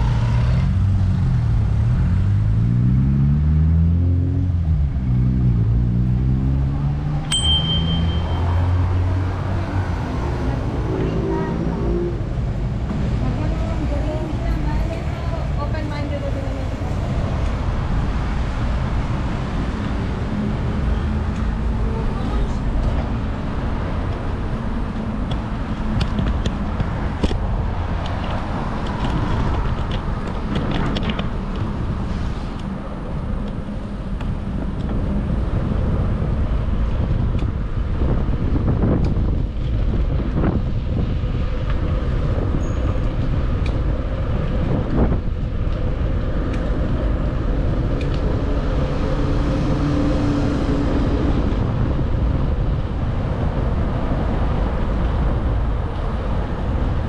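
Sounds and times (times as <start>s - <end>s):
road traffic: 0.0s - 57.0s
wind rumble on microphone: 0.0s - 57.0s
bike clicks and knocks: 25.2s - 31.8s.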